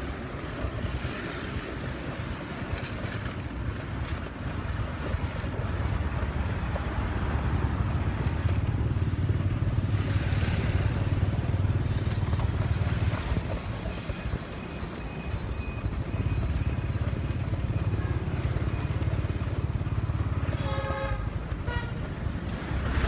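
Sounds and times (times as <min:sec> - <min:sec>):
road and wind noise: 0:00.0 - 0:23.0
motorbike engine running: 0:03.2 - 0:23.0.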